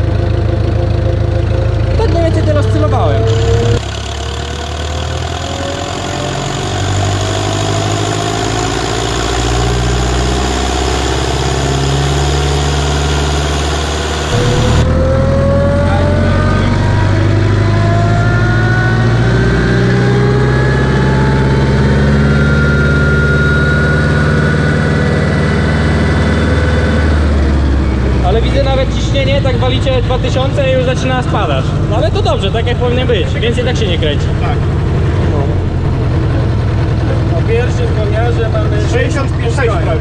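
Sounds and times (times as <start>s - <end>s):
rising whine: 0.0s - 28.2s
diesel tractor engine under load: 0.0s - 40.0s.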